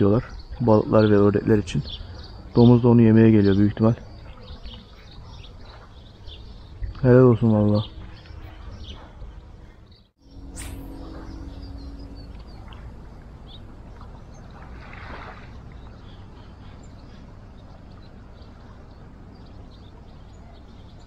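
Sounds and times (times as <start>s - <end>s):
faint bird chirps: 0.0s - 21.0s
low rumble: 6.5s - 20.0s.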